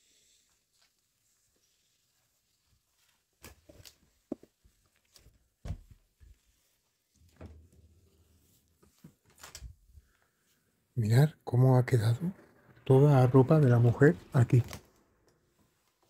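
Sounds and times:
soft knocks and thuds: 5.6 - 6.1.

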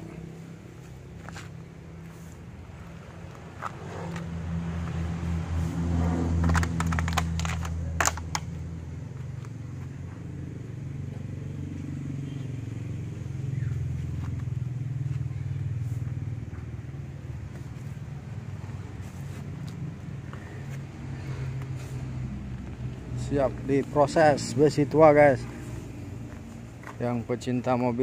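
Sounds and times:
vehicle engine running: 0.0 - 28.0
sharp clicks and knocks: 6.3 - 8.6.

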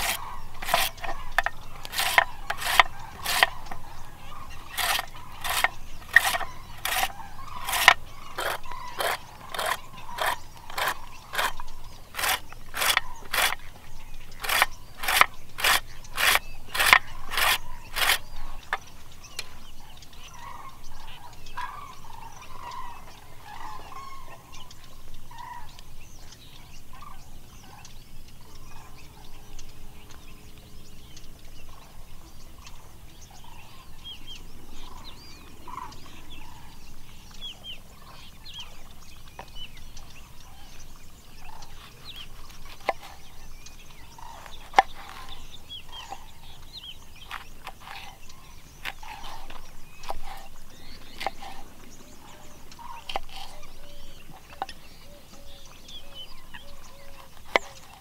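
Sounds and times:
fowl calling: 0.0 - 18.8, 19.4 - 24.7
small birds chirping: 0.0 - 58.0.

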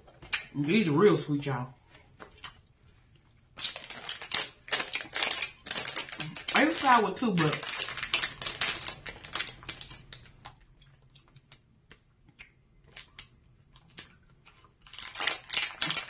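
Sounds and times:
plastic bag crinkling: 3.5 - 11.0, 12.9 - 16.0.

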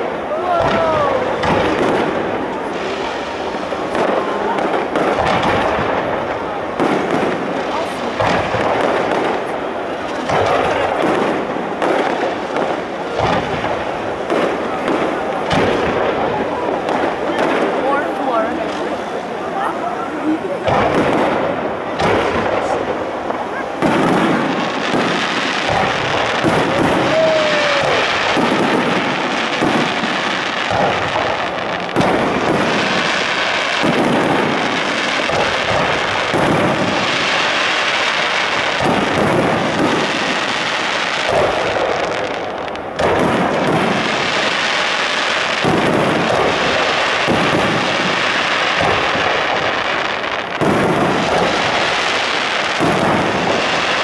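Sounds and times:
firework crackle: 0.0 - 54.0
firework shells bursting: 20.6 - 54.0.

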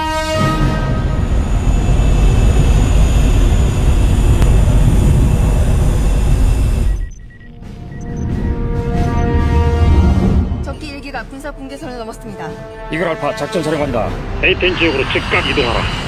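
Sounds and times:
jet engines flying past: 0.0 - 9.2, 14.4 - 16.0.

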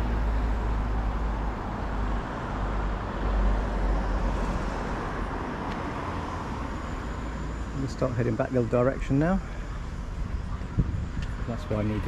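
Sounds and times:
road traffic hiss and rumble: 0.0 - 12.0.

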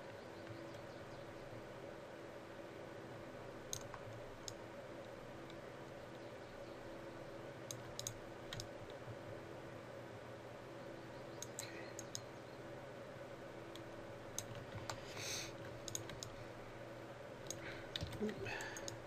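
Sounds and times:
low electrical hum: 0.0 - 19.0
mouse and keyboard clicks: 7.7 - 9.0, 11.4 - 12.3, 13.7 - 16.4.

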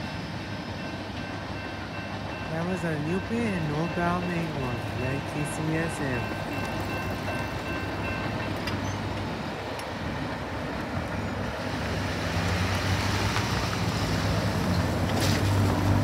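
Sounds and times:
crossing bell ringing: 0.0 - 9.4
traffic engine hum: 2.6 - 16.0.

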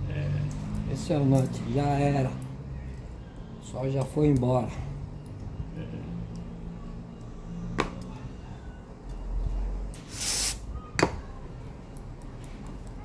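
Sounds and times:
brief hiss: 10.0 - 10.6.

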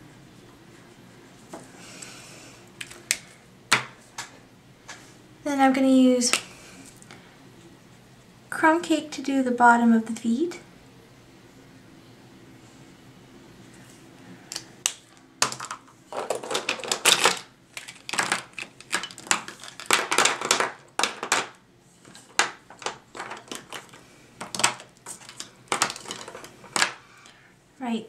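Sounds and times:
plastic markers clicking and clattering: 15.4 - 27.0.

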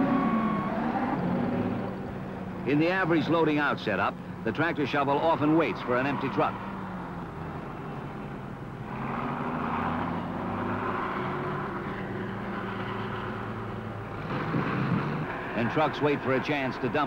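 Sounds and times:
diesel engine droning: 0.0 - 17.0.

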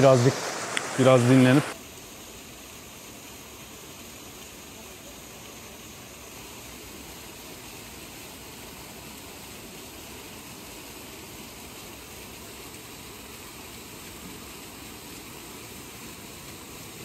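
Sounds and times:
waterfall rushing: 0.0 - 1.8.

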